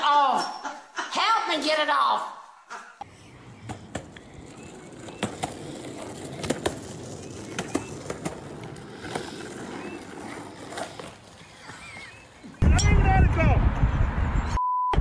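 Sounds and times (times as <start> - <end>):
skateboard wheels rolling on pavement: 3.0 - 12.6.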